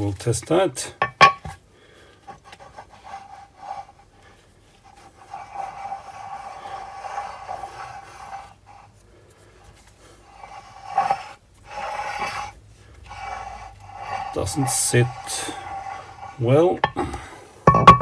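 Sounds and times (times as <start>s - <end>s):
metal rubbing on metal plate: 2.6s - 4.1s, 4.8s - 9.0s, 10.0s - 18.0s.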